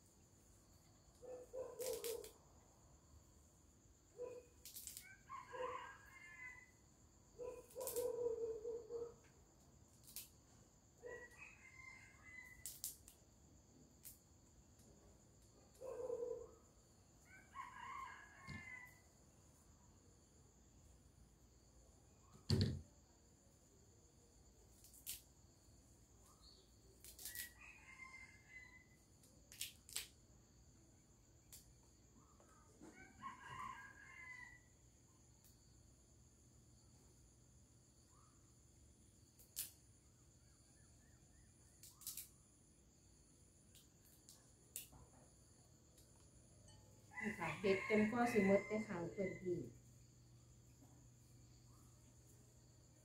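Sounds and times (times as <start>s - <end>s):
crickets chirring: 0.0s - 53.0s
herb stems snapping: 1.8s - 2.3s, 7.8s - 8.1s, 24.8s - 25.3s, 27.0s - 27.5s, 29.5s - 30.2s, 41.8s - 42.3s
faint rooster crowing: 3.8s - 9.3s, 10.9s - 12.9s, 14.9s - 20.6s, 26.2s - 29.2s, 32.0s - 36.9s, 44.7s - 53.0s
rooster crowing: 5.2s - 6.8s, 11.0s - 12.7s, 17.3s - 19.1s, 27.5s - 29.0s, 32.8s - 34.8s, 47.0s - 49.8s.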